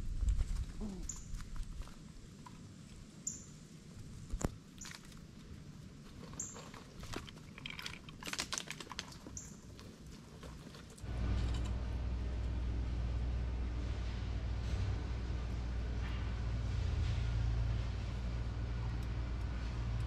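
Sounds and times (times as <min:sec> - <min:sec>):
squirrel chirps: 0:03.2 - 0:03.5
squirrel clicking and scraping: 0:04.2 - 0:11.8
low rumble: 0:11.0 - 0:20.0.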